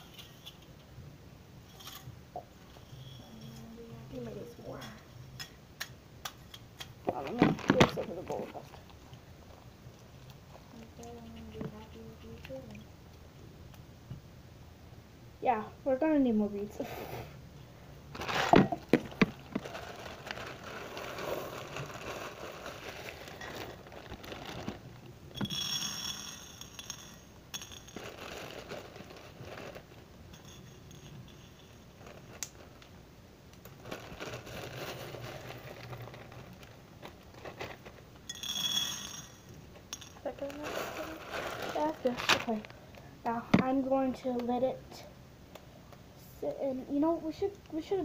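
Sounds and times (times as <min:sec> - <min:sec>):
plastic bag crinkling: 0:07.1 - 0:08.9, 0:18.1 - 0:25.1, 0:27.8 - 0:30.1, 0:31.8 - 0:32.9, 0:33.6 - 0:38.3, 0:40.2 - 0:43.8
beads clicking and rattling: 0:18.2 - 0:24.8.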